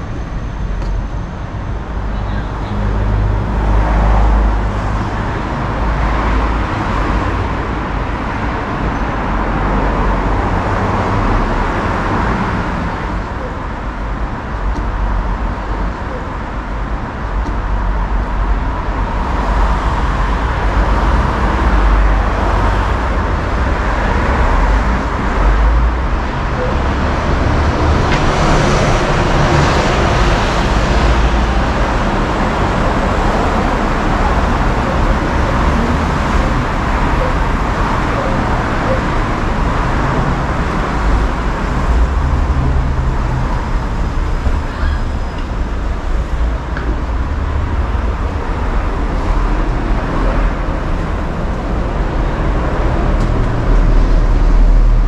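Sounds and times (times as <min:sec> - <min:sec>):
city street traffic: 0:00.0 - 0:55.0.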